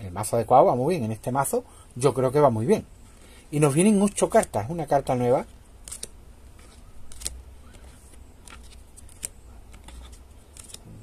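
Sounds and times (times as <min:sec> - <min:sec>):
low steady hum: 0:00.0 - 0:11.0
cards clicking onto a stack: 0:05.8 - 0:10.9.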